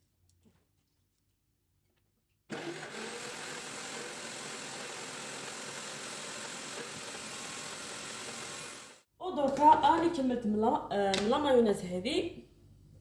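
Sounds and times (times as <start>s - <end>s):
blender running: 2.5s - 9.0s.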